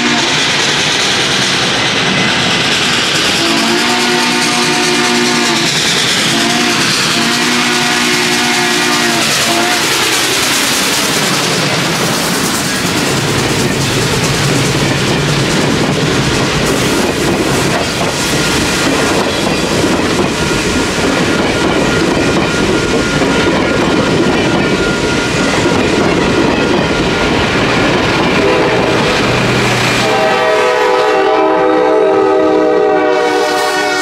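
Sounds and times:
locomotive horn: 0.0s - 0.4s, 3.4s - 10.0s, 28.3s - 34.0s
train rumbling past: 0.0s - 34.0s.

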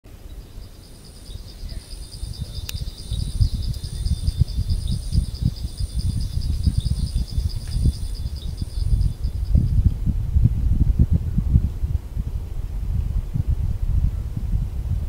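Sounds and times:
insects trilling: 0.1s - 9.8s
wind buffeting microphone: 0.1s - 15.0s
higher insect buzz: 0.2s - 9.6s.

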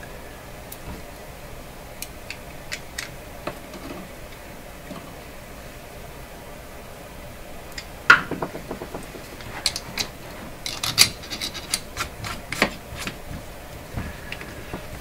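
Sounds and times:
clicks and scrapes: 9.3s - 13.4s.

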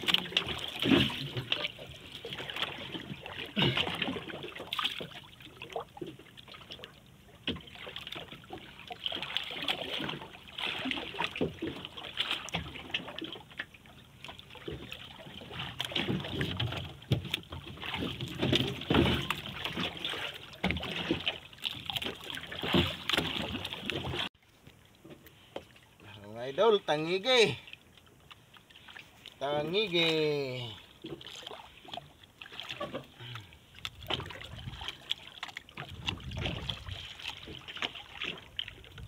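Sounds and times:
water splashing against boat hull: 0.0s - 39.0s
boat knocking and bumping: 9.8s - 13.0s, 14.5s - 24.3s.

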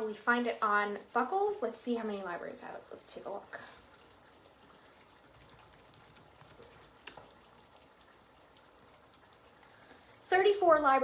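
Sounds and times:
crackling pops from simmering pan: 4.2s - 9.4s.

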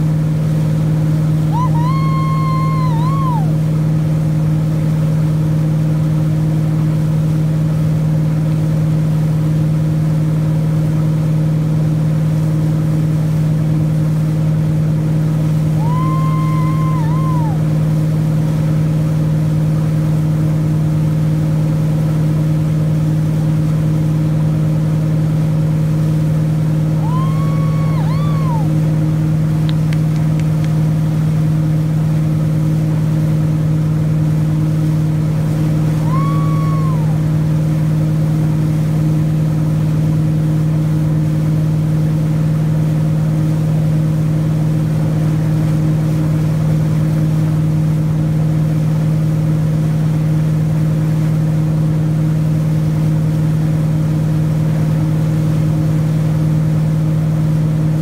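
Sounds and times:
boat engine droning: 0.0s - 58.0s
water rushing behind hull: 0.0s - 58.0s
long high-pitched call: 1.5s - 3.6s, 15.8s - 17.7s, 27.0s - 28.8s, 36.0s - 37.3s.

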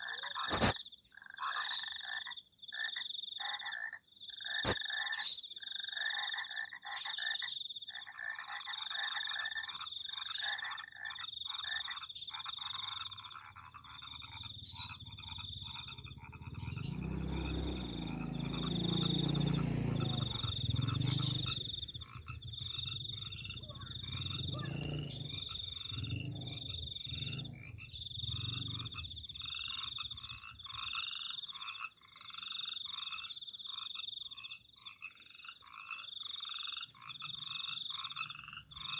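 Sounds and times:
frogs calling: 0.0s - 38.9s
low sound of shifting pitch: 14.9s - 29.0s.

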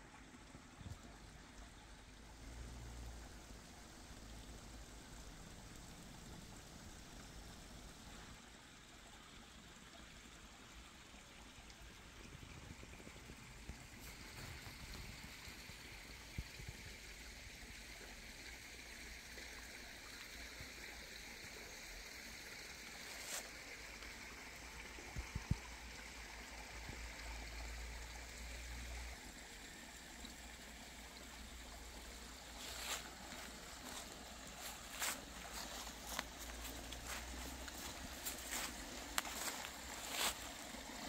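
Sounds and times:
stream trickling: 0.0s - 41.0s
footsteps crunching dry leaves: 32.6s - 41.0s.

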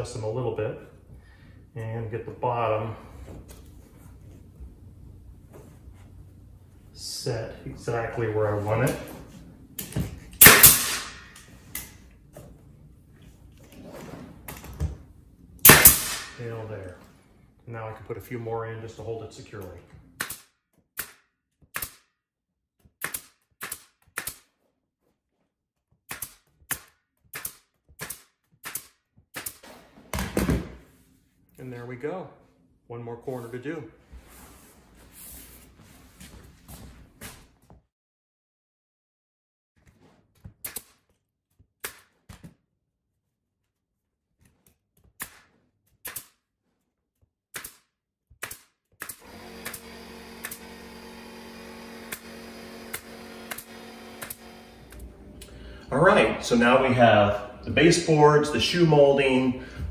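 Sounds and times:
nail gun firing into wood: 10.4s - 11.5s, 15.6s - 16.4s, 20.2s - 22.1s, 23.0s - 24.5s, 26.1s - 29.6s, 45.2s - 46.4s, 47.5s - 55.0s.

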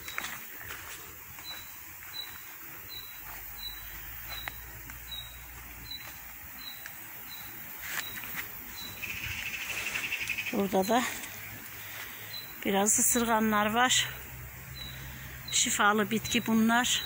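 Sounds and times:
cricket chirping: 0.0s - 11.6s.

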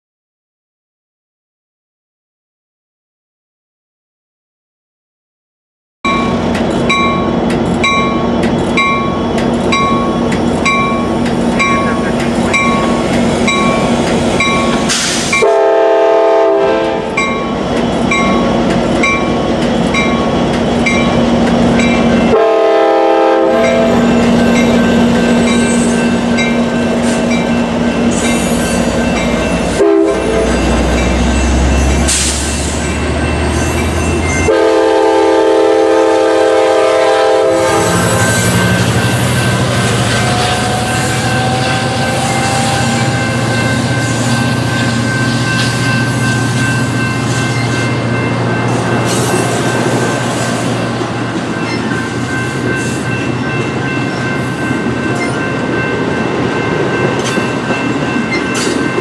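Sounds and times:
crossing bells dinging: 6.1s - 16.0s, 16.8s - 35.7s, 37.6s - 59.0s
locomotive horn blasts: 15.3s - 17.3s, 22.3s - 25.5s, 29.8s - 31.0s, 34.4s - 38.9s
train wheel clatter: 38.6s - 59.0s.

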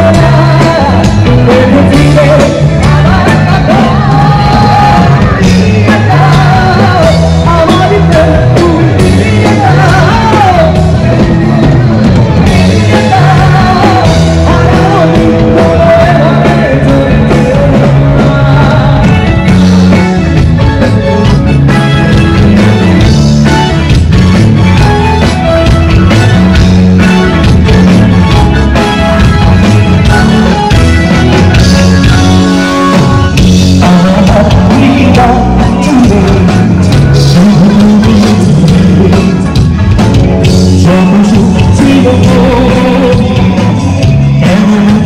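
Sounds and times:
man singing into a microphone: 0.0s - 11.4s, 12.4s - 19.9s, 33.0s - 39.8s, 40.4s - 45.0s
live band with keyboard: 0.0s - 45.0s
steady bass line: 0.0s - 45.0s.

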